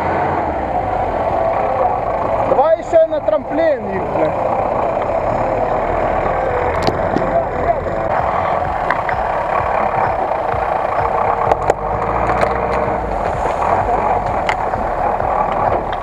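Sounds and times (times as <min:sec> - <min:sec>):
truck engine under load: 0:00.0 - 0:16.0.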